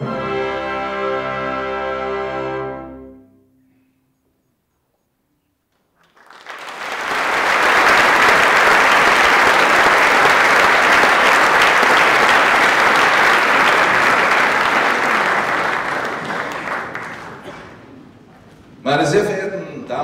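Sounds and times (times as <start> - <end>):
audience applauding: 5.8 - 18.3.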